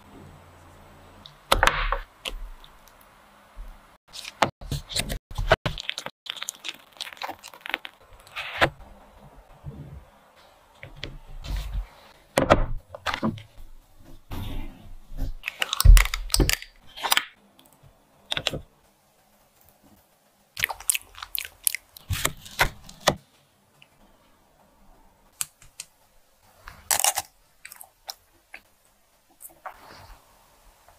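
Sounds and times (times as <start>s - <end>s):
bites crunching chocolate coating: 5.7s - 8.0s.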